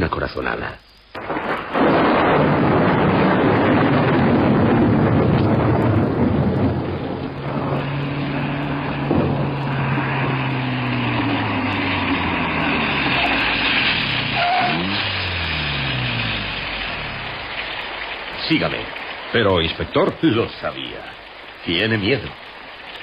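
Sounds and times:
rain hiss: 0.0 - 23.0
car engine driving: 5.1 - 20.4.

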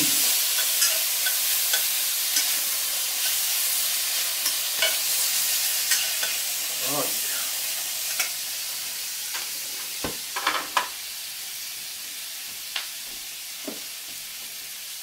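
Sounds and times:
beans sizzling in a skillet: 0.0 - 15.0
metal tongs clicking on pan: 0.4 - 3.5, 4.4 - 5.1, 5.9 - 6.4.

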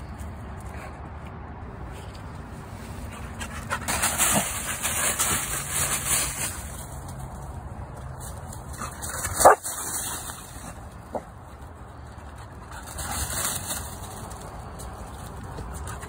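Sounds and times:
dry leaves rustling and crunching: 3.4 - 16.0
dog barking: 9.4 - 9.6.

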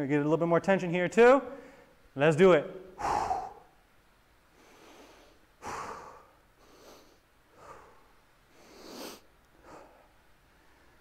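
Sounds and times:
man breathing hard: 2.9 - 3.8, 4.5 - 11.0.

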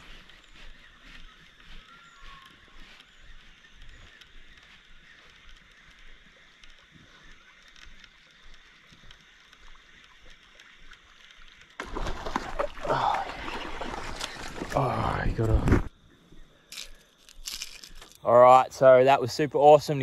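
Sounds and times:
river water flowing: 9.2 - 15.6.

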